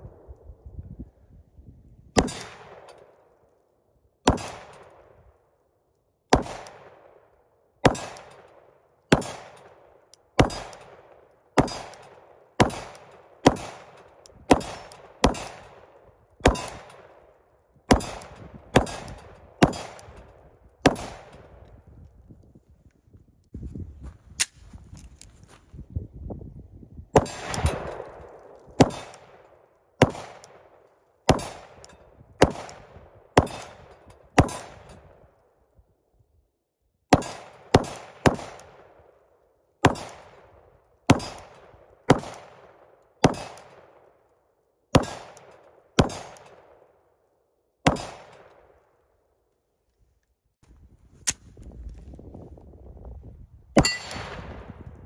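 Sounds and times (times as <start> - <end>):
pistol shots: 2.2 - 3.1, 4.2 - 5.1, 6.3 - 7.2, 7.8 - 17.3, 17.9 - 21.6, 27.2 - 35.0, 37.1 - 39.0, 39.8 - 40.4, 41.1 - 44.1, 44.9 - 46.9, 47.8 - 48.8, 53.8 - 54.8
steel plate clanging: 53.8 - 54.2.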